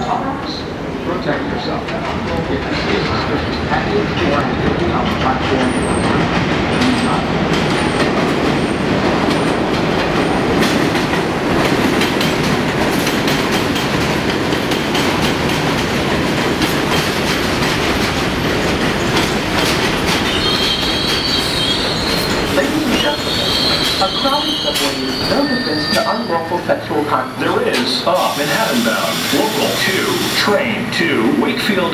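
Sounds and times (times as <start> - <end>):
train wheels rumbling and clacking: 0.0 - 31.9
high-pitched wheel squeal: 20.3 - 26.6.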